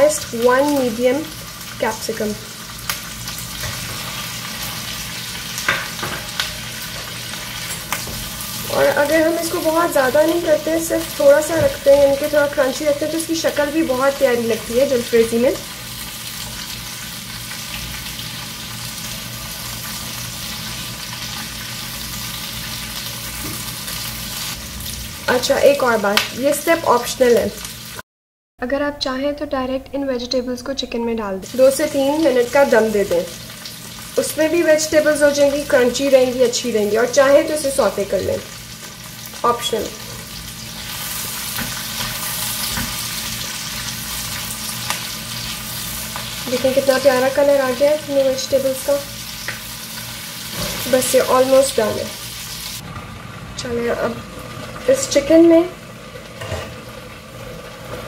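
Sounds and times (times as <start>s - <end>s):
vegetables sizzling in oil: 0.0s - 28.0s, 31.4s - 58.0s.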